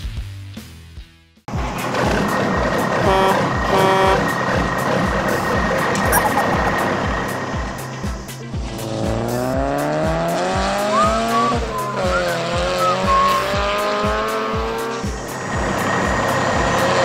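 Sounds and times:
car engine revving: 1.5s - 17.0s
short squealing chirps: 6.1s - 6.8s, 10.8s - 13.8s.

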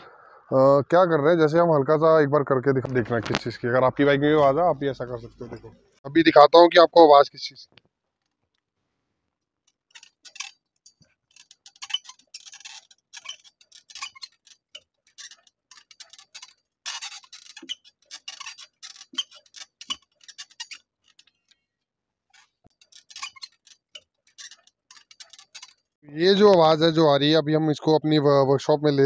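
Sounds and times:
motorcycle parts rattling: 9.6s - 21.6s, 22.3s - 26.6s.

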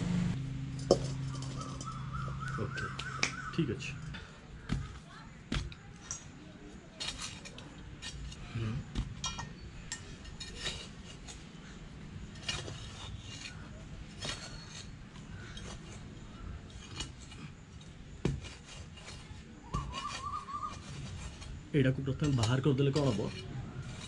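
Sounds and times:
digging tool scraping soil: 6.9s - 9.2s, 10.1s - 24.0s.

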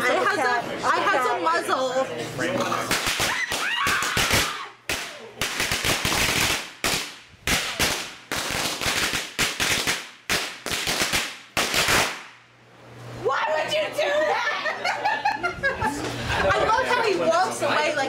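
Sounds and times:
firecrackers crackling: 2.8s - 12.5s.

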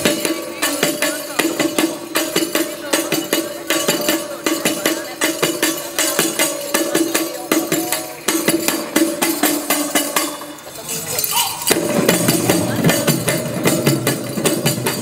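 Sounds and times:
hand percussion strokes: 0.0s - 15.0s
held pitched tone: 10.2s - 13.4s.

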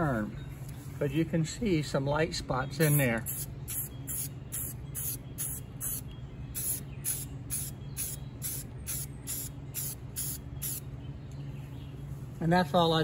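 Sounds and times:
aerosol spray can hissing: 3.2s - 6.0s, 6.6s - 10.8s.

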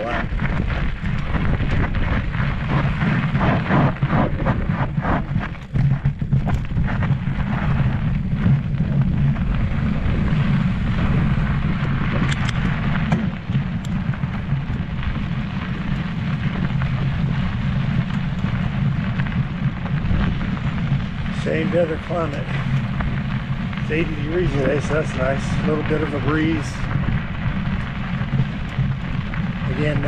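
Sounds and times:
bike tyres crunching over gravel: 0.0s - 30.0s
wind buffeting microphone: 0.0s - 30.0s
sharp ticks: 11.8s - 30.0s.

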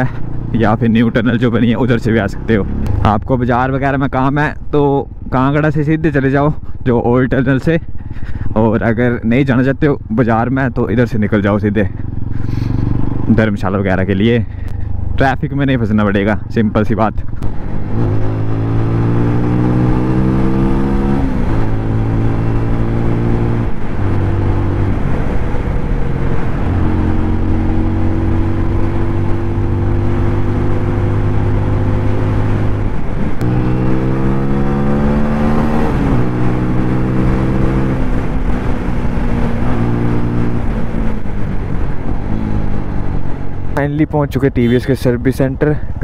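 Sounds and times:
motorcycle engine running: 11.6s - 13.6s.

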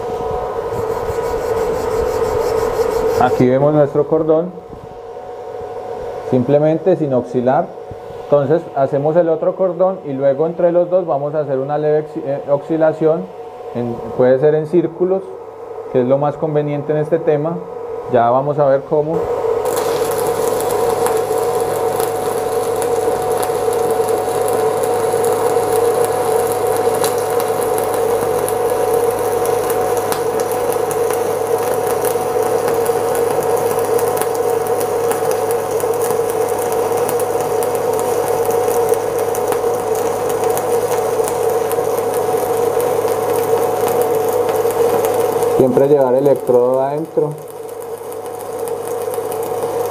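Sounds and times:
welding arc crackling hiss: 0.0s - 4.6s, 15.9s - 49.9s.

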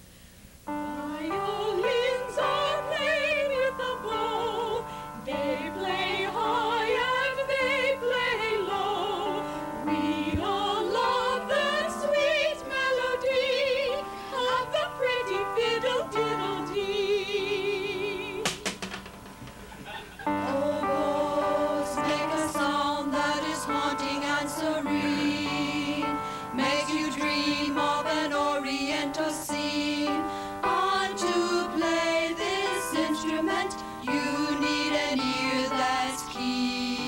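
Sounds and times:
held chords: 0.7s - 37.0s
operatic melody with vibrato: 20.2s - 37.0s.

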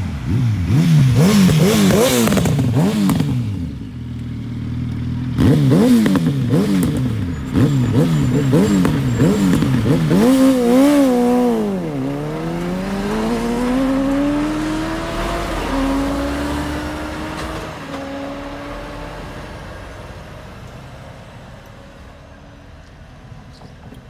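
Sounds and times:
lorry diesel engine accelerating: 0.0s - 23.7s.

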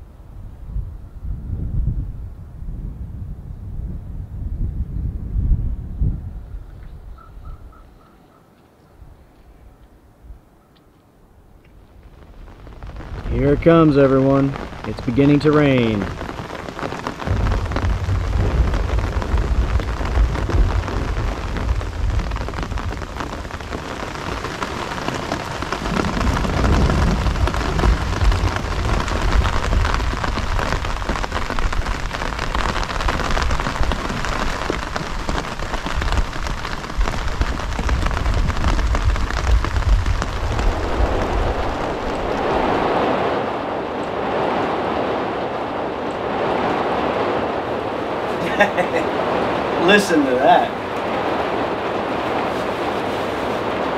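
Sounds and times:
rain on tent fabric: 11.6s - 53.9s
low rumble: 17.2s - 23.8s.

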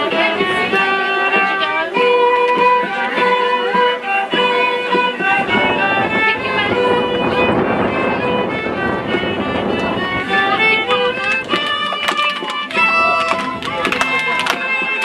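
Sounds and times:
children's voices: 0.0s - 15.0s
fiddle playing folk dance tune: 0.0s - 15.0s
guitar accompaniment: 0.0s - 15.0s
children's feet shuffling: 9.8s - 15.0s.

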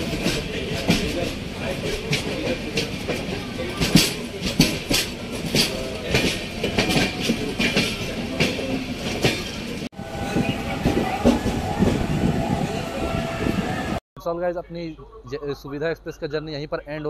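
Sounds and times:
train wheels clacking over rail joints: 0.0s - 12.6s.

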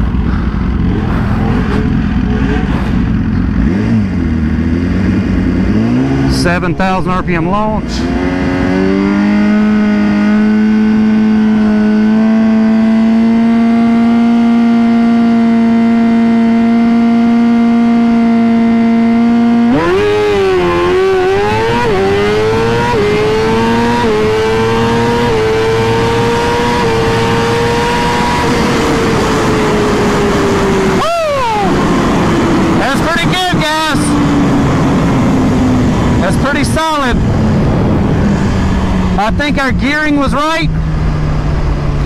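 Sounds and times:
motorcycle accelerating through gears: 0.0s - 6.8s, 7.6s - 42.0s
motorcycle engine revving: 0.0s - 42.0s.

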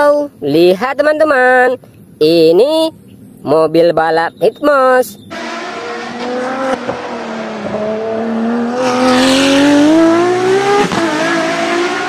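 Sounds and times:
race car engine accelerating: 5.3s - 12.0s.

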